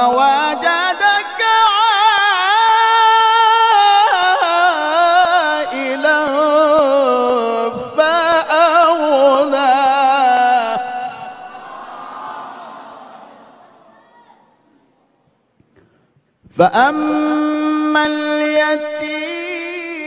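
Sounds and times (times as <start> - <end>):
man reciting melodically: 0.0 - 11.8, 16.4 - 20.0.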